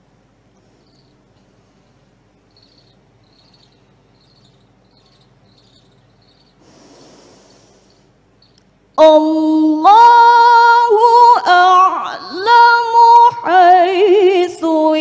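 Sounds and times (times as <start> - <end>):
sound system hum: 0.0 - 13.4
faint high chirps: 0.6 - 6.6, 7.4 - 9.1
woman breathing in deeply: 6.6 - 8.1.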